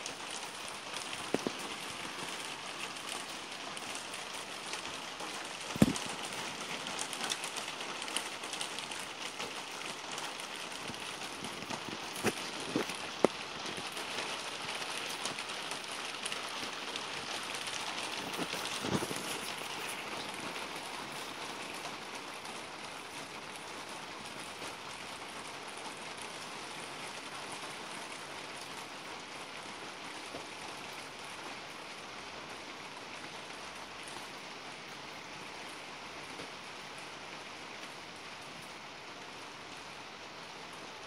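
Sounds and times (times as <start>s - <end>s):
raindrops tapping close by: 0.0s - 41.0s
steady rain: 0.0s - 41.0s.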